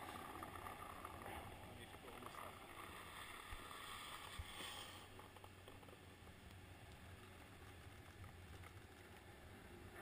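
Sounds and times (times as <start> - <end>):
skis gliding over snow: 0.0 - 10.0.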